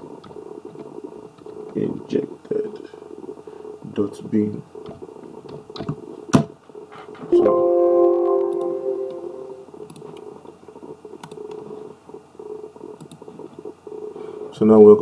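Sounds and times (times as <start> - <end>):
computer chime: 7.3 - 9.8.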